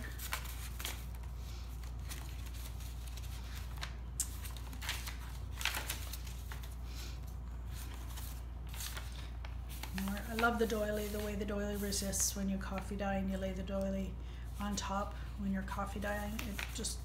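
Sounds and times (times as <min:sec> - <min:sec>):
pages flipping over: 0:00.0 - 0:12.0, 0:16.0 - 0:17.0
paper pages rustling: 0:00.0 - 0:12.9, 0:15.6 - 0:17.0.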